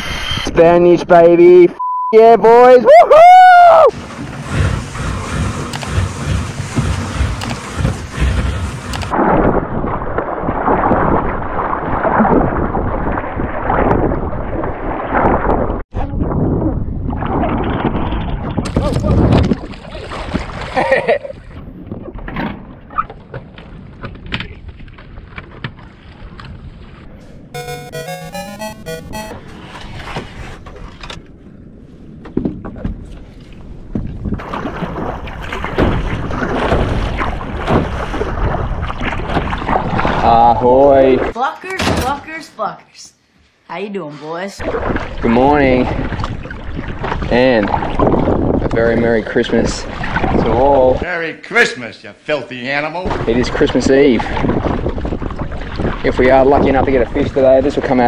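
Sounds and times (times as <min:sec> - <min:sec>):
paddle splashing in water: 0:03.9 - 0:15.6, 0:17.2 - 0:20.9, 0:32.7 - 0:40.4, 0:44.6 - 0:48.5, 0:49.8 - 0:50.6, 0:54.2 - 0:56.0
wind buffeting microphone: 0:15.4 - 0:19.8, 0:45.9 - 0:51.0, 0:53.2 - 0:58.0.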